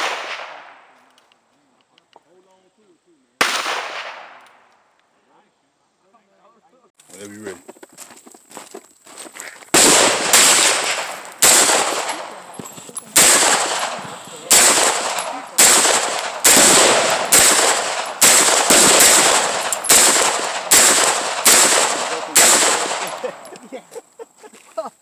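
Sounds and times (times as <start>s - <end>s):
pistol shots with echo: 0.0s - 0.9s, 3.4s - 4.6s, 9.8s - 23.5s.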